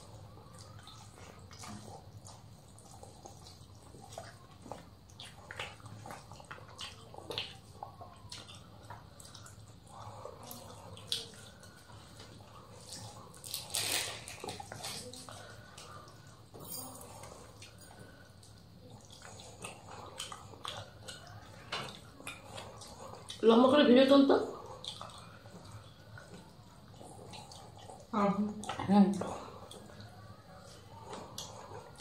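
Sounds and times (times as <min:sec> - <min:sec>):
wet chewing and lip smacks: 0:00.0 - 0:23.5, 0:24.5 - 0:32.0
faint low hum: 0:00.0 - 0:32.0.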